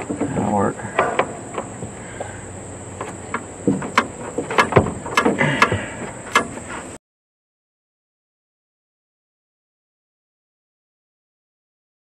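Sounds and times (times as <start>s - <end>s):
latch rods and clips clicking: 1.0s - 1.8s, 3.0s - 6.6s.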